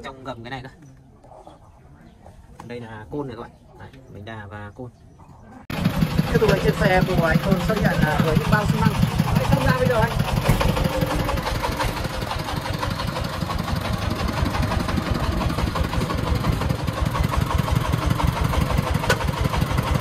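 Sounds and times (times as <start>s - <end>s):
diesel engine thudding: 5.7s - 20.0s.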